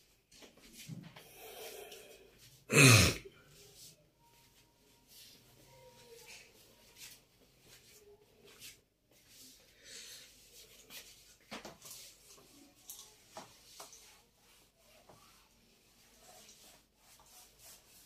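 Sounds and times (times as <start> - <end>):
duster rubbing whiteboard: 13.2 - 18.0.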